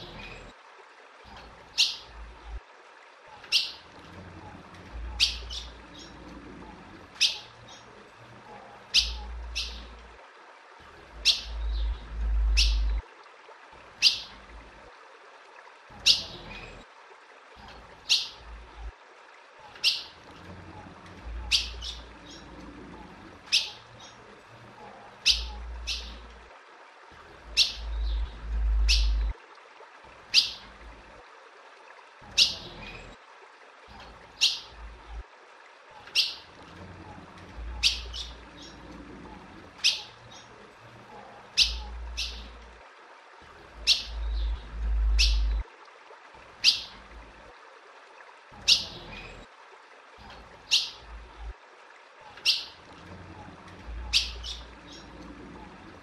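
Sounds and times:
bird chip calls: 1.7s - 2.1s, 3.5s - 3.8s, 5.1s - 6.2s, 7.2s - 7.9s, 8.9s - 9.9s, 11.2s - 13.0s, 14.0s - 14.3s, 18.0s - 18.4s, 19.8s - 20.2s, 21.4s - 22.5s, 23.5s - 24.2s, 25.2s - 26.2s, 27.5s - 29.3s, 30.3s - 30.6s, 36.1s - 36.5s, 37.8s - 38.8s, 39.8s - 40.5s, 41.6s - 42.6s, 43.8s - 45.6s, 46.6s - 47.0s, 48.6s - 49.1s, 50.7s - 51.0s, 52.4s - 52.8s, 54.0s - 55.1s.

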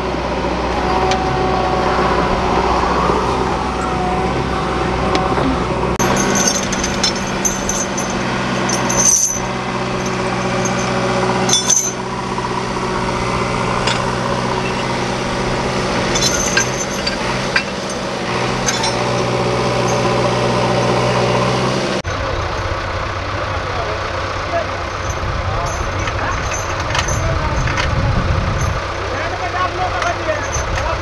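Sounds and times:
diesel engine idling: 0.0s - 31.0s
metallic clinks and knocks: 5.1s - 13.0s, 13.6s - 21.0s, 24.8s - 28.0s, 30.0s - 30.9s.

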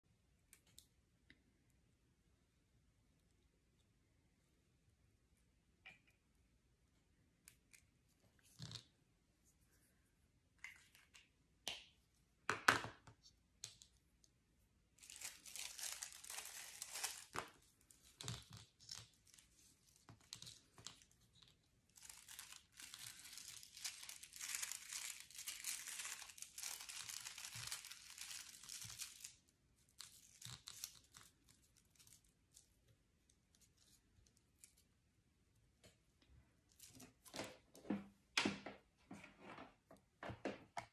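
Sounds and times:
cellophane crinkling: 15.0s - 32.8s.

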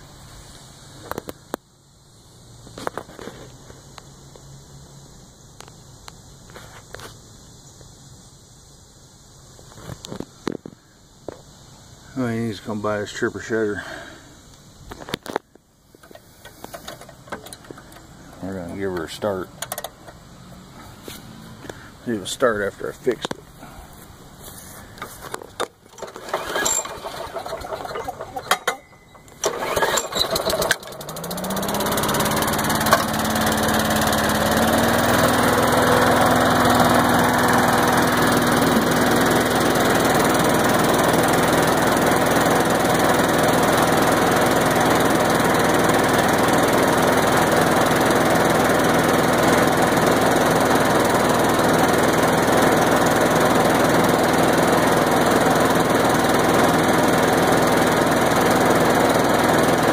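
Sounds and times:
recoil starter tugs: 15.0s - 23.5s, 24.9s - 59.9s
small engine running: 25.0s - 59.9s
shredder rushing noise: 25.9s - 59.9s.

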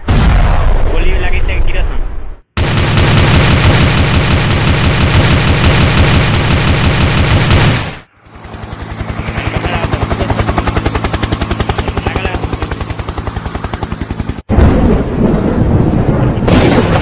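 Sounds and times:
machine-gun fire: 2.6s - 8.1s, 16.4s - 17.0s
helicopter rotor chop: 2.6s - 14.5s.

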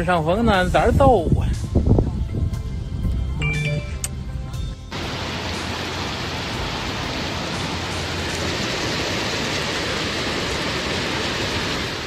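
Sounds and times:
floodwater rushing: 4.9s - 12.0s
heavy rain: 4.9s - 12.0s.

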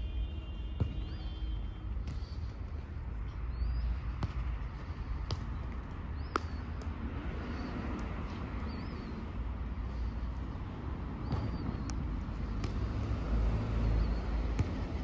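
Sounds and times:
city traffic rumble: 0.0s - 15.0s
football kicked on turf: 0.7s - 2.9s, 3.7s - 7.0s, 11.2s - 13.3s, 14.0s - 15.0s.

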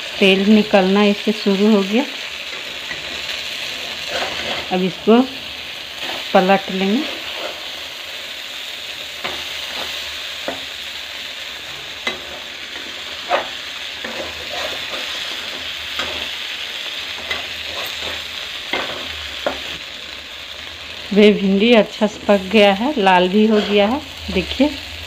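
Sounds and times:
okra sizzling in oil: 0.0s - 25.0s
metal spatula scraping pan: 2.5s - 5.2s, 6.0s - 7.8s, 11.7s - 16.4s, 17.1s - 19.7s, 23.4s - 24.5s.

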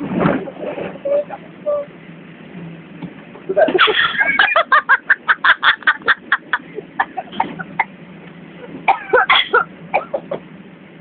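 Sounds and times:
person cackling laughter: 3.5s - 7.9s.

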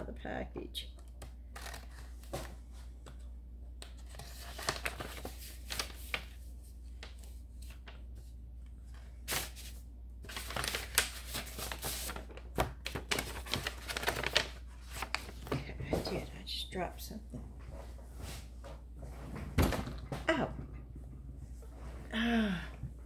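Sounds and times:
packaging crinkling and tearing: 1.5s - 2.3s, 3.9s - 6.4s, 9.3s - 15.5s.

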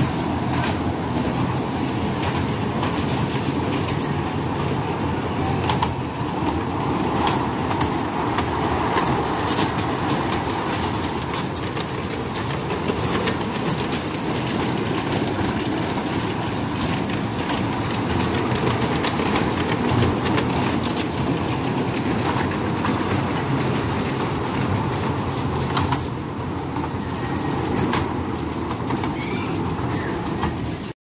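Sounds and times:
ride-on train rumbling: 0.0s - 31.0s
wheels clicking on track: 0.0s - 31.0s.

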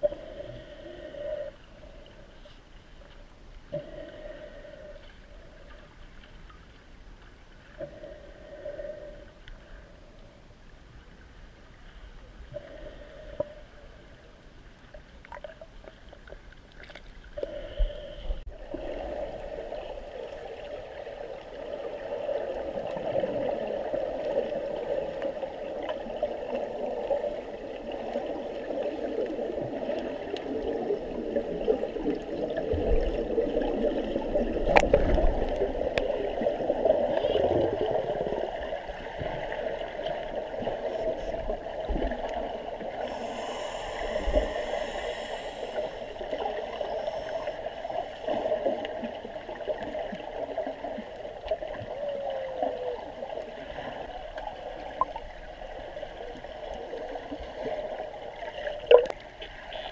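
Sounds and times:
water gurgling and bubbling: 17.4s - 59.9s.

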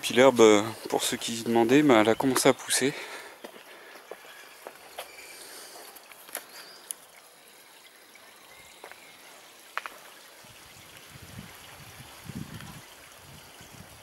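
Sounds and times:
water trickling from pond: 4.3s - 14.0s.

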